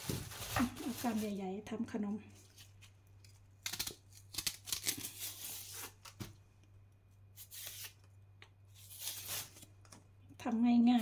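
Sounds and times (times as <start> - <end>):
knife peeling rhubarb: 2.5 - 6.2, 7.3 - 8.1.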